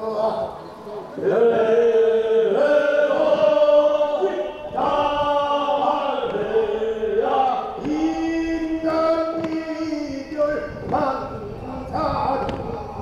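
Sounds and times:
chorus singing long notes: 0:00.0 - 0:13.0.

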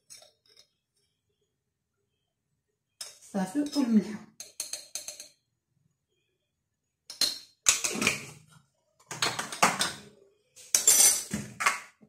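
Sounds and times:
spice jars clattering on counter: 0:09.1 - 0:10.0.

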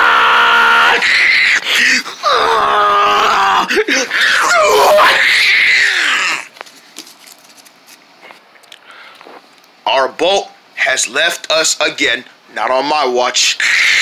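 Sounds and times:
person wailing and screaming: 0:00.0 - 0:06.5, 0:13.6 - 0:14.0.

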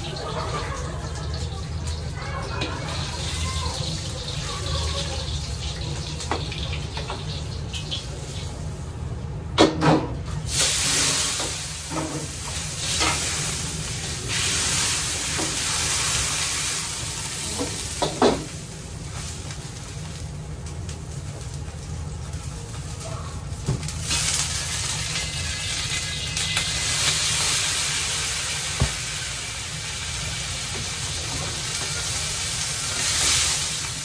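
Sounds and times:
low rumble of cooking range: 0:00.0 - 0:34.0
loud sizzling hiss: 0:10.4 - 0:34.0.

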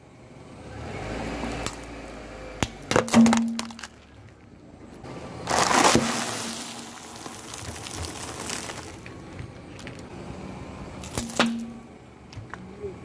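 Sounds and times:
crisps crunching under tyre: 0:02.6 - 0:10.1, 0:11.0 - 0:12.6
snack bag bursting: 0:05.5 - 0:09.0
water item crushed and spraying: 0:05.5 - 0:09.0.

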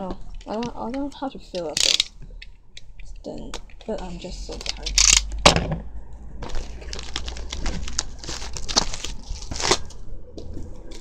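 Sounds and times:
plastic packaging crinkling: 0:00.4 - 0:02.1, 0:06.4 - 0:10.0
plastic ripping: 0:01.6 - 0:02.1, 0:06.4 - 0:10.0.

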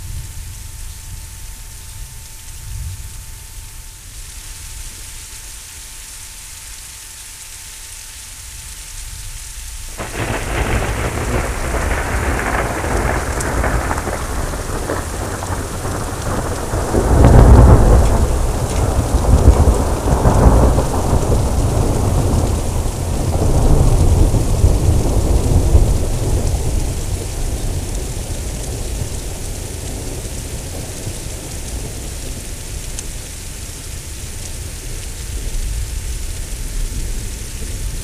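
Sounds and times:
rain falling: 0:00.0 - 0:38.0
crackling thunderclap: 0:09.9 - 0:38.0
low rumbling thunder: 0:09.9 - 0:38.0.

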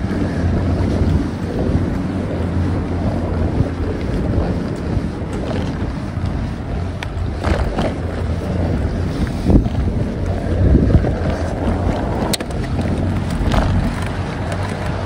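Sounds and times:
bicycle tyres rumbling on path: 0:00.0 - 0:15.0
wind buffeting microphone: 0:00.0 - 0:15.0
knocks and rattles: 0:07.4 - 0:08.4, 0:10.9 - 0:15.0.

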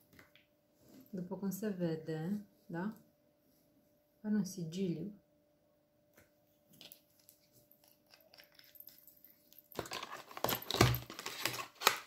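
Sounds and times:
small clicks of packaging: 0:06.7 - 0:12.0
cardboard rustling and scraping: 0:09.8 - 0:12.0.

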